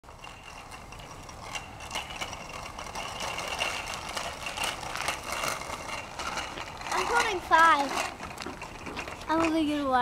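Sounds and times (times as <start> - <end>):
bicycle rattling over gritty pavement: 0.0 - 10.0.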